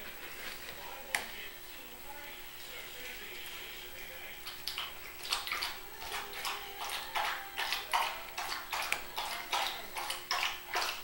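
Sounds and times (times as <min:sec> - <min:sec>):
masking tape rustling and crinkling: 0:00.0 - 0:01.3
faint steady hum: 0:00.0 - 0:11.0.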